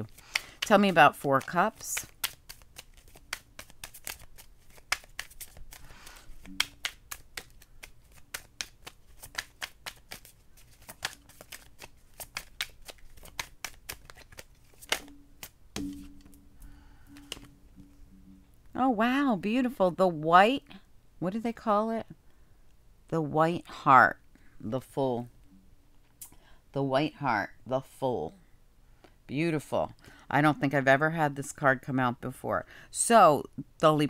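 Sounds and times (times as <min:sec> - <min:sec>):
cards being shuffled: 0:00.0 - 0:18.0.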